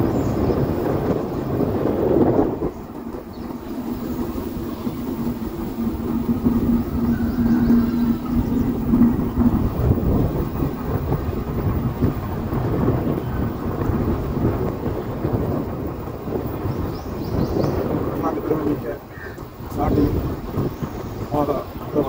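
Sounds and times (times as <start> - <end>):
road and engine noise: 0.0 - 22.0
wind rumbling on microphone: 0.0 - 22.0
steady hum: 2.1 - 15.4.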